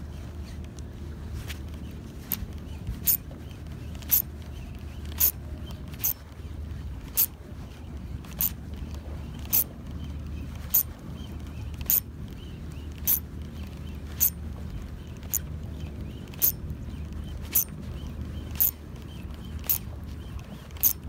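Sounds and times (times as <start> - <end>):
low rumble of wind: 0.0 - 21.0
fishing reel ticking: 2.2 - 3.2, 4.0 - 4.3, 5.0 - 6.2, 7.0 - 7.4, 8.0 - 9.7, 10.6 - 11.0, 11.7 - 14.4, 15.2 - 15.5, 16.3 - 16.6, 17.2 - 17.7, 18.4 - 19.9, 20.7 - 21.0.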